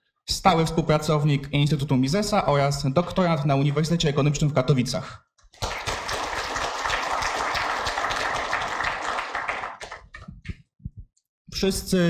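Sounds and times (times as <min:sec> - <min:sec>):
audience applause: 0:05.6 - 0:10.3.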